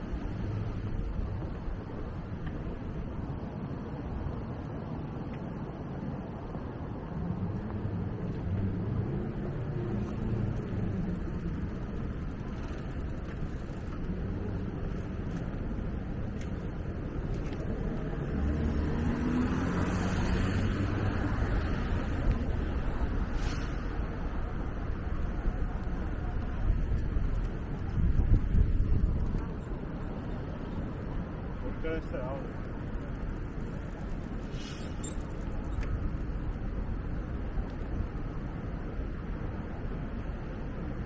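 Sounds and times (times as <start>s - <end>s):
traffic rumble: 0.0s - 41.0s
vehicle passing with tyre hiss: 7.2s - 15.1s, 17.7s - 25.5s, 30.8s - 35.8s.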